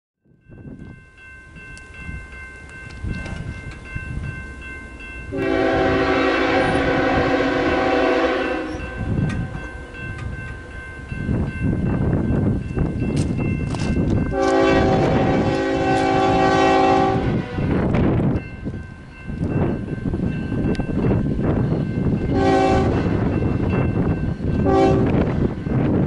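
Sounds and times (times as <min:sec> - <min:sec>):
crossing bell ringing: 0:00.3 - 0:26.0
locomotive air horn blast: 0:05.3 - 0:09.9, 0:14.3 - 0:17.7, 0:22.3 - 0:23.2, 0:24.6 - 0:25.2.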